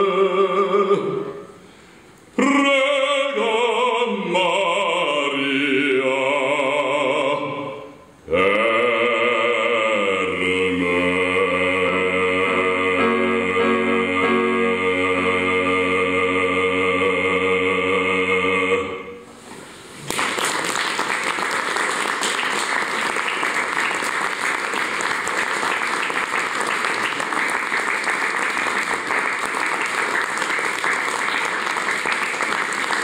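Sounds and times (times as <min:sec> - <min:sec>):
digital piano: 0:12.5 - 0:16.0
audience applause: 0:20.0 - 0:33.0.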